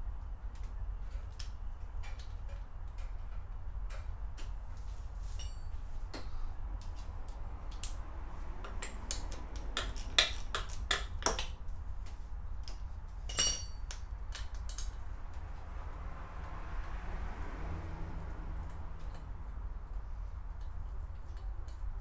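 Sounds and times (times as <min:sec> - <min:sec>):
ringing metallic ping: 0:13.3 - 0:13.8.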